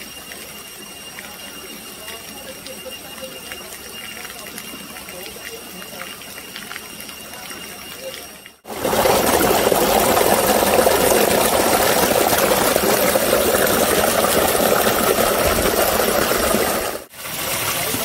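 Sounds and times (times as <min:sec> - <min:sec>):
waterfall rushing: 0:08.7 - 0:18.0.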